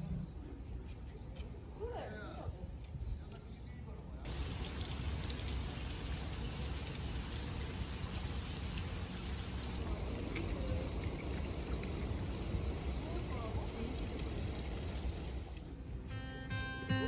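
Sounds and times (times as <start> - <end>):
light rain hiss: 4.2 - 16.1
rain drop ticks: 4.3 - 15.7.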